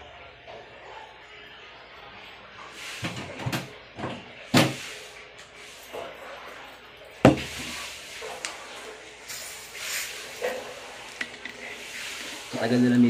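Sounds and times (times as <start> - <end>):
cupboard doors knocking: 7.3 - 7.5.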